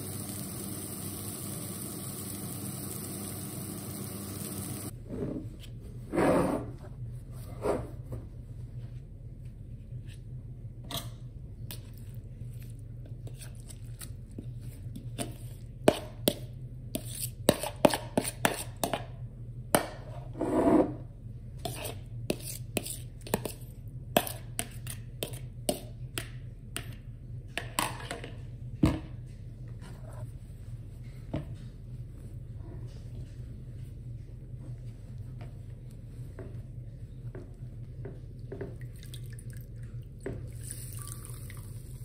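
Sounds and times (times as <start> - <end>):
low steady hum: 18.8 - 42.0.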